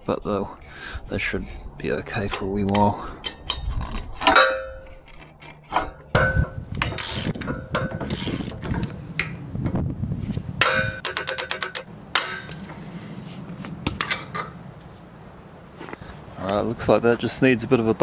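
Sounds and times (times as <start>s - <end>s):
metal clanks and scrapes: 1.2s - 9.4s, 10.6s - 12.9s.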